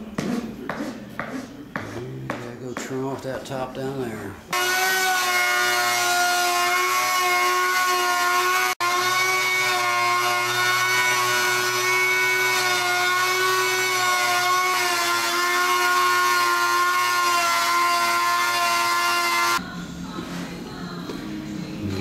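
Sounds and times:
trim router whining: 0:04.5 - 0:19.6.

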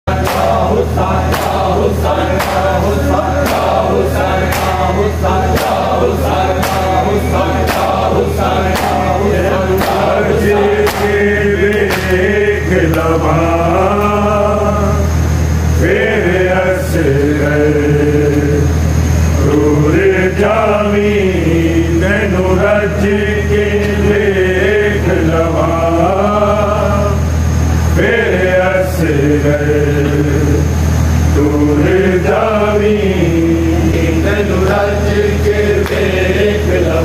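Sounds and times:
men chanting together: 0:00.1 - 0:15.2, 0:15.8 - 0:18.7, 0:19.4 - 0:27.3, 0:28.0 - 0:30.7, 0:31.4 - 0:37.0
hands slapping chests: 0:06.6 - 0:07.0.

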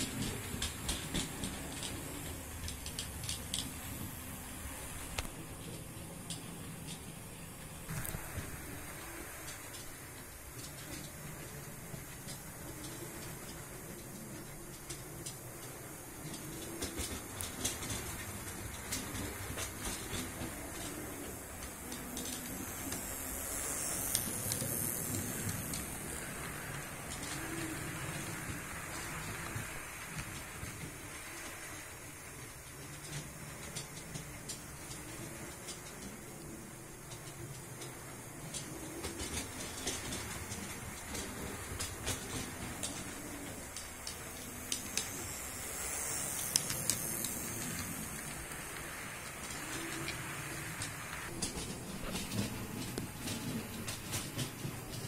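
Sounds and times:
model train rumbling: 0:00.0 - 0:55.0
wheels clicking over rail joints: 0:00.0 - 0:55.0.

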